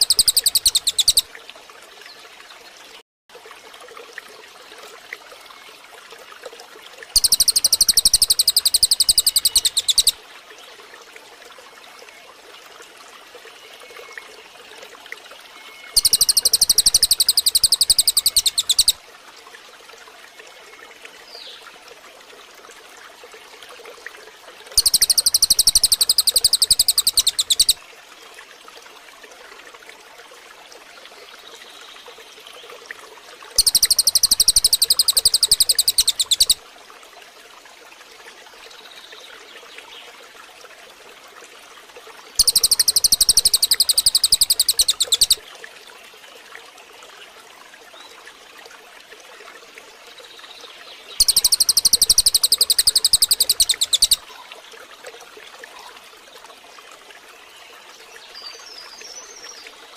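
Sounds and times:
songbird fast high trill: 0.0 - 1.3, 7.2 - 10.2, 15.9 - 19.0, 24.8 - 27.8, 33.6 - 36.6, 42.4 - 45.4, 51.2 - 54.2
running water: 0.0 - 59.9.

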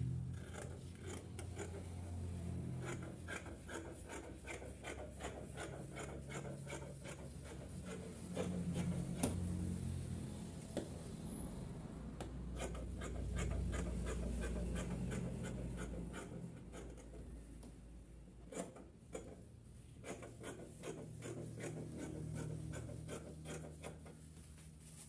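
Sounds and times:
scissors snipping fabric: 0.3 - 1.8, 2.8 - 9.4, 12.2 - 17.2, 18.4 - 19.4, 20.0 - 24.2.

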